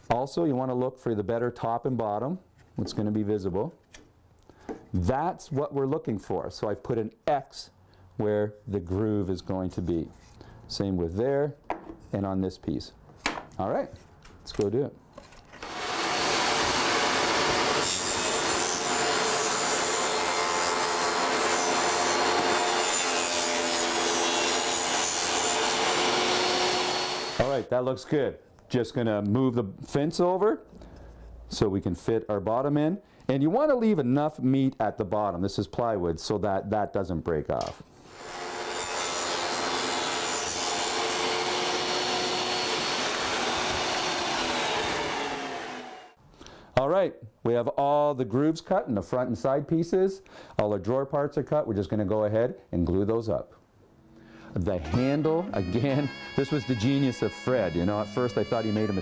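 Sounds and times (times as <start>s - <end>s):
table saw cutting wood: 15.6s - 27.6s, 38.0s - 46.2s, 54.8s - 59.0s.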